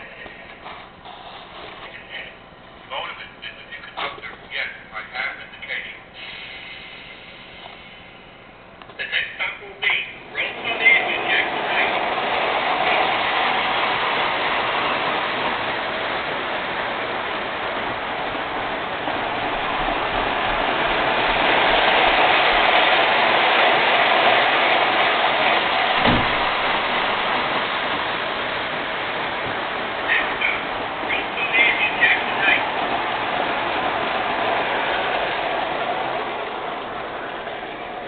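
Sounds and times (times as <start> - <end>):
model train rolling on track: 0.0 - 8.2, 8.8 - 38.0
low thump: 26.0 - 27.0.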